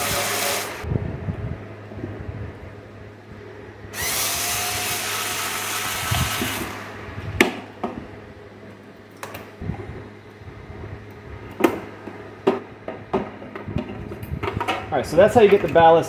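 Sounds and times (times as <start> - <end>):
power screwdriver running: 0.0 - 0.8, 4.0 - 6.9.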